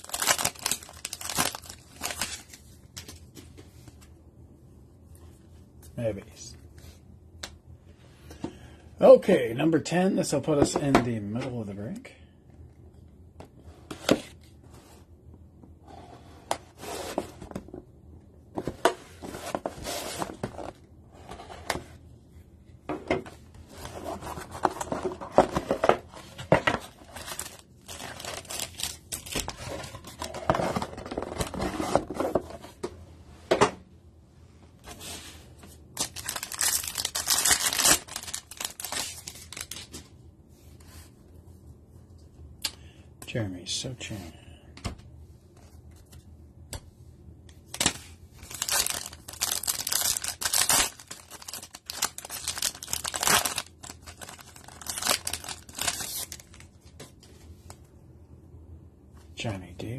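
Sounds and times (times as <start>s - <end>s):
foil packs rustling and crinkling: 0.0s - 2.6s, 26.7s - 31.7s, 36.0s - 40.0s, 47.8s - 56.7s
wrapper tearing: 0.0s - 2.6s, 27.0s - 29.5s, 36.0s - 39.9s, 47.7s - 56.6s.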